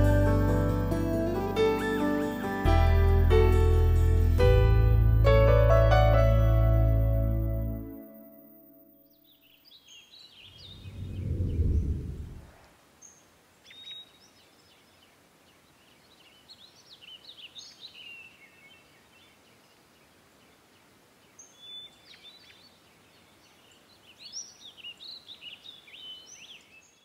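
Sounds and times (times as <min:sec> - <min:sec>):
songbirds singing: 0:09.0 - 0:12.0, 0:13.0 - 0:27.0.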